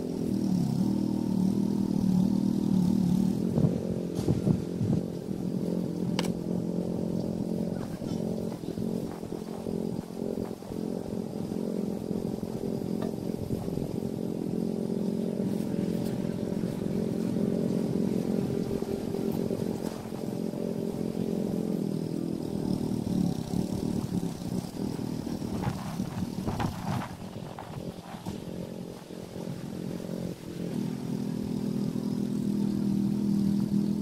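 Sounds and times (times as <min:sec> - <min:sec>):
engine running steadily: 0:00.0 - 0:34.0.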